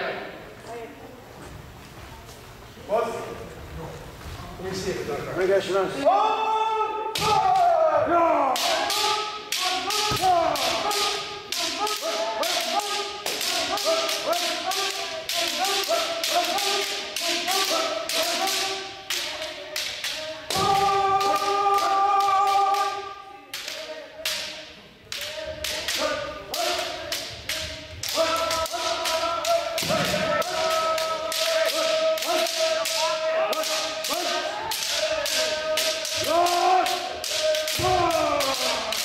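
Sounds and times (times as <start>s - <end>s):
people shouting: 6.0s - 39.0s
bamboo swords clacking: 8.4s - 39.0s.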